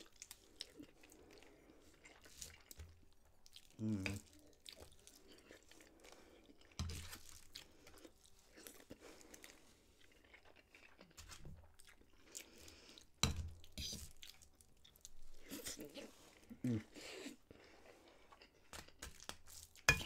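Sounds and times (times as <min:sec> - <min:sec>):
chewing: 0:00.0 - 0:19.9.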